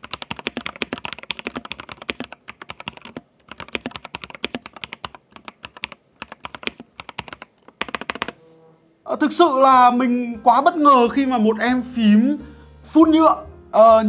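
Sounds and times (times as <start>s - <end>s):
mechanical keyboard typing: 0.0s - 8.4s.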